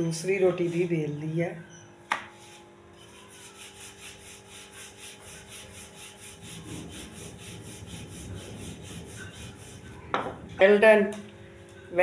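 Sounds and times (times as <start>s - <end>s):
rolling pin rolling dough: 2.4s - 10.5s.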